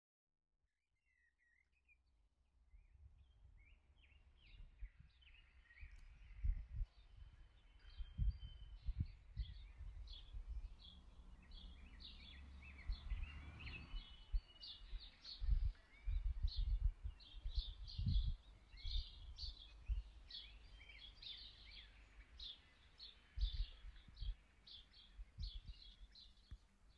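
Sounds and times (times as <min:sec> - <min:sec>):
small birds chirping: 0:01.1 - 0:26.9.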